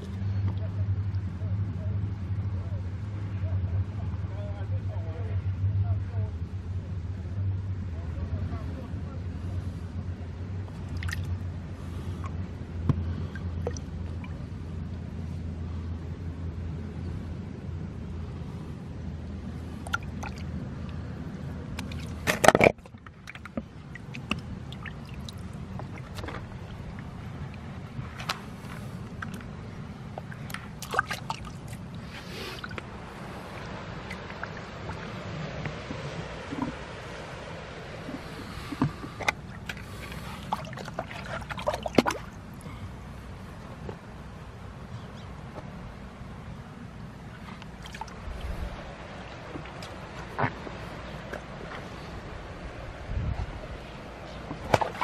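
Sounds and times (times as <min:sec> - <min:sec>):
low background noise: 0:00.0 - 0:55.0
stream water running: 0:07.9 - 0:55.0
water splashing in plastic basin: 0:30.4 - 0:31.6, 0:40.5 - 0:42.4, 0:54.6 - 0:55.0.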